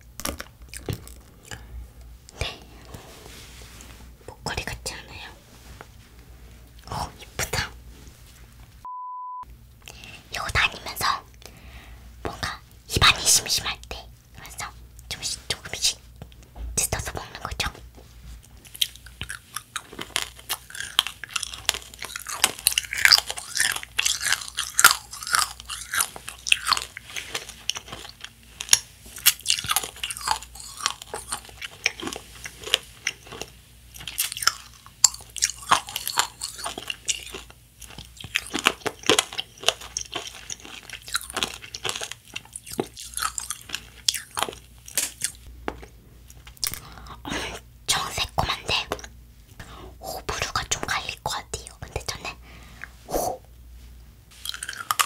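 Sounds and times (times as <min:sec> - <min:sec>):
crunchy candy chewing: 0:18.6 - 0:47.2, 0:54.3 - 0:55.0.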